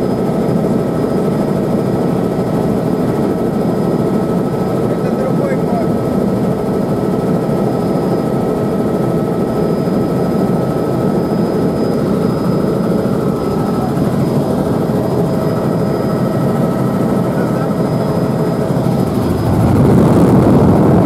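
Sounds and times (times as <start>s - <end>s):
helicopter rotor and engine drone: 0.0s - 21.0s
thin high whines: 9.4s - 21.0s.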